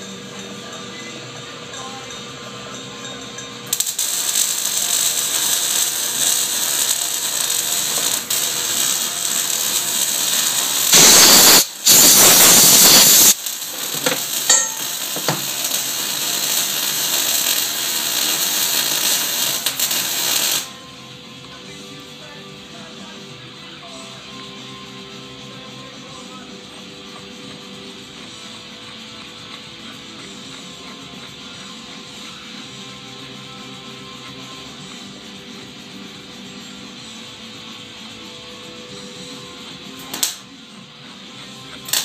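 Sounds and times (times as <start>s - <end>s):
metal lathe running: 0.0s - 20.6s
loud hiss: 3.8s - 20.7s.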